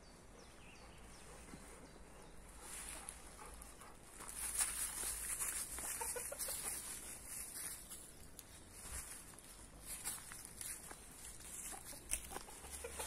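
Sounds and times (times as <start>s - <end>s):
chickens clucking: 1.3s - 7.6s, 11.2s - 13.0s.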